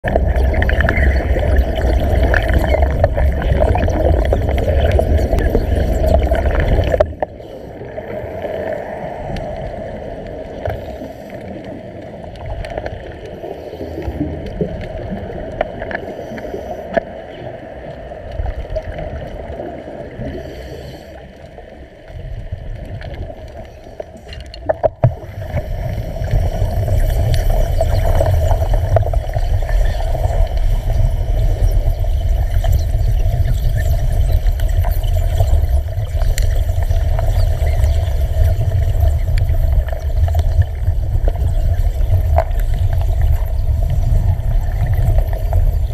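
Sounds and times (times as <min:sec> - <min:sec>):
underwater bubbling and gurgling: 0:00.0 - 0:45.9
underwater cutting torch rumbling: 0:22.4 - 0:45.9.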